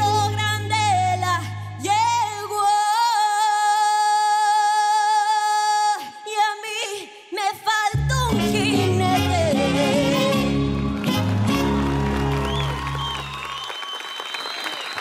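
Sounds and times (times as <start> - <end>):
woman singing into a microphone: 0.0 - 10.6.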